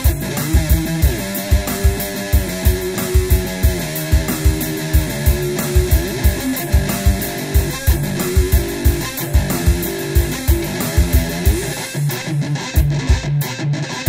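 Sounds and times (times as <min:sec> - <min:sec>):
amplified one-string guitar riffing: 0:00.0 - 0:14.0
heavy low thumps: 0:00.1 - 0:11.7.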